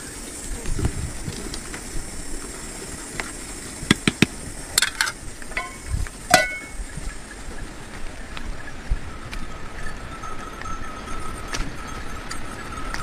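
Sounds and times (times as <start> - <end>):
steady hiss: 0.0 - 13.0
metal cookware clinking: 4.0 - 6.8
short metallic rings: 4.8 - 6.8.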